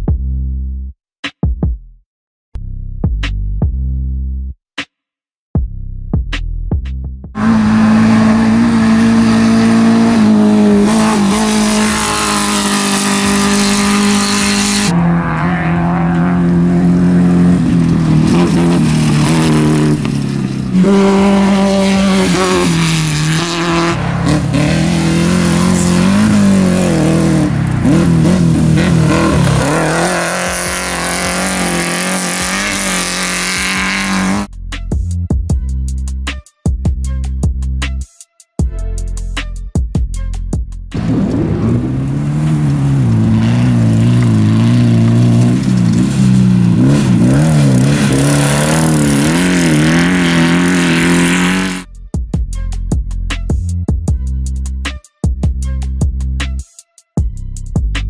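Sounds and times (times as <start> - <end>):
race vehicle engine revving: 7.4 - 34.5, 40.9 - 51.9.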